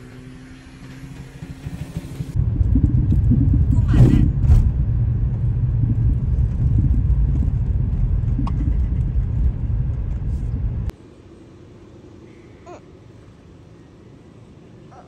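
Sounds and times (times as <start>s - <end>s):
car rumbling on the move: 0.0s - 10.9s
open-air background: 6.3s - 15.0s.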